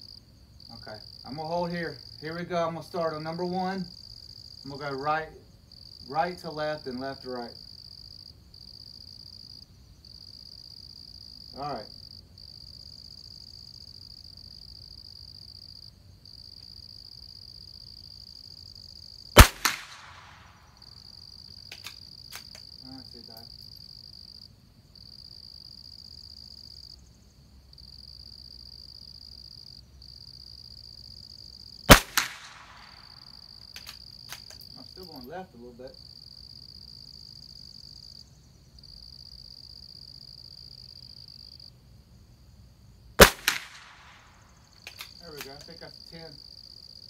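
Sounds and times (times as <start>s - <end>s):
high insect buzz: 0.0s - 47.0s
rifle shots cracking: 19.4s - 20.6s, 31.9s - 33.2s, 43.2s - 45.6s
rifle bolt clicks: 21.7s - 22.6s, 33.7s - 34.6s, 44.8s - 45.7s.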